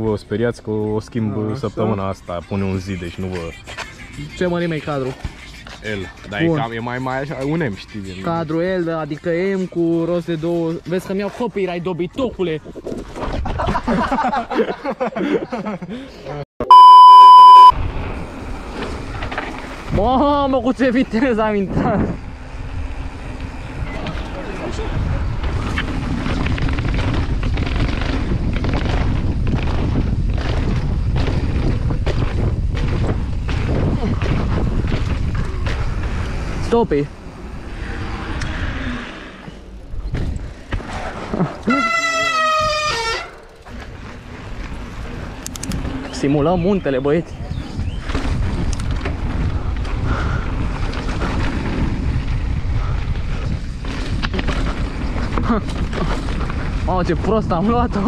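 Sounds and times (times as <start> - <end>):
mountain bike rumble and rattle: 0.0 - 16.0, 17.8 - 58.0
wind buffeting microphone: 19.8 - 37.8, 43.9 - 58.0
bike knocks and rattles: 25.3 - 36.3, 39.9 - 45.0, 47.6 - 58.0.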